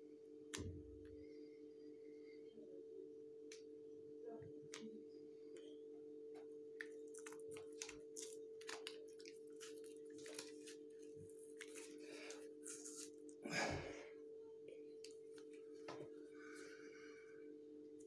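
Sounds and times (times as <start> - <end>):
playing cards tearing: 7.2 - 13.2.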